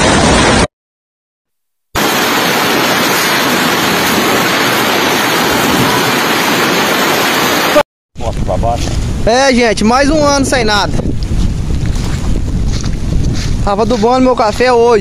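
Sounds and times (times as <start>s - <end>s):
hail and rain pelting down: 2.0s - 7.8s.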